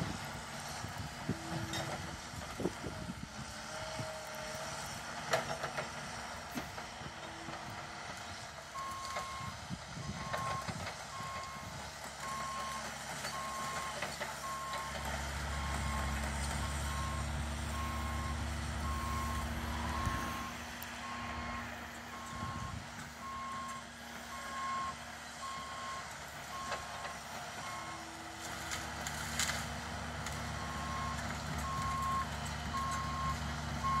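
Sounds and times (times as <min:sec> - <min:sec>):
diesel engine running: 0:00.0 - 0:34.0
excavator motion alarm beeping: 0:08.8 - 0:28.3, 0:30.6 - 0:34.0.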